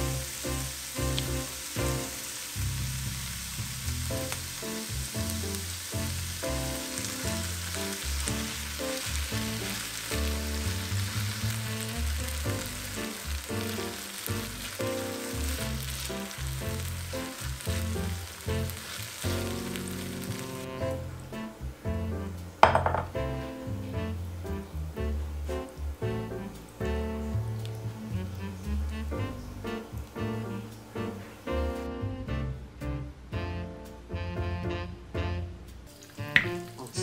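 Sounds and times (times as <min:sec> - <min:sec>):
vegetables sizzling in frying pan: 0:00.0 - 0:21.5, 0:35.9 - 0:37.0
background music: 0:00.0 - 0:37.0.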